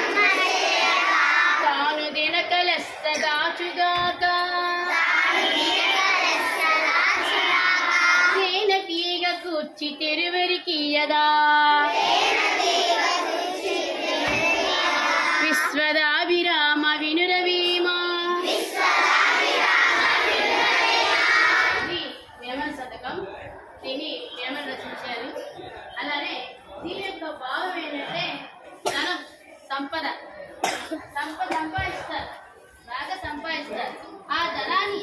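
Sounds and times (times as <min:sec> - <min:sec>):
young children singing: 0:00.0 - 0:01.8, 0:04.8 - 0:08.5, 0:11.8 - 0:15.8, 0:18.4 - 0:21.9.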